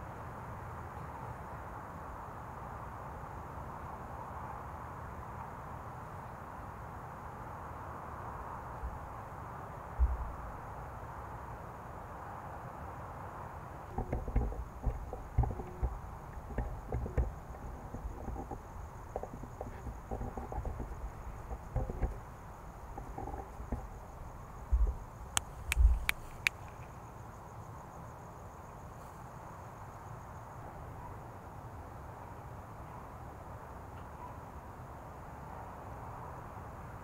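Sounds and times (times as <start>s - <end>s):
low thumps and knocks: 13.9s - 26.5s
sharp clicks: 24.7s - 26.9s.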